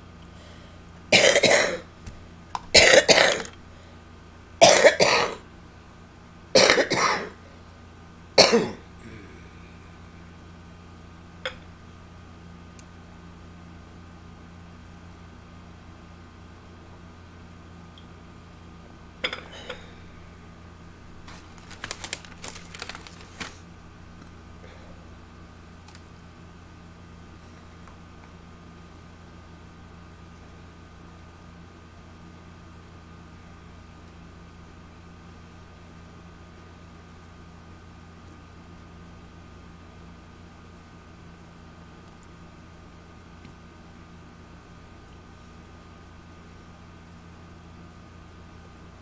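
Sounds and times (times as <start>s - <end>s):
steady low hum: 0.0s - 49.0s
woman coughing: 1.2s - 1.9s, 2.8s - 3.5s, 4.6s - 5.4s, 6.6s - 7.4s, 8.4s - 8.9s
objects clicking and crinkling: 21.2s - 23.6s.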